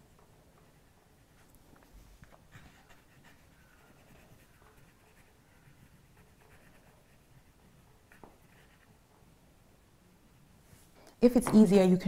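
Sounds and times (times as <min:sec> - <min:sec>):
paintbrush scratching on paper: 0:02.3 - 0:09.0.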